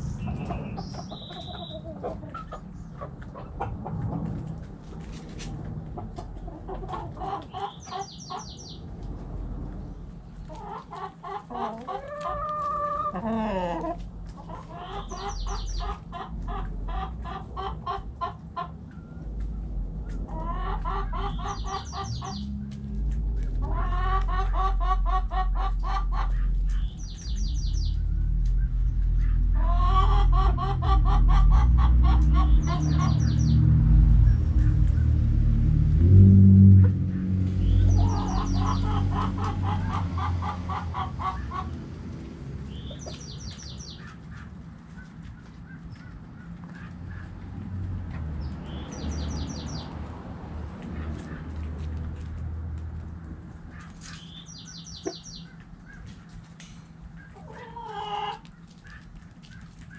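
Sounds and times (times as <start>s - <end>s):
chickens clucking: 0.0s - 35.6s, 36.6s - 59.9s
low rumble: 18.9s - 43.8s.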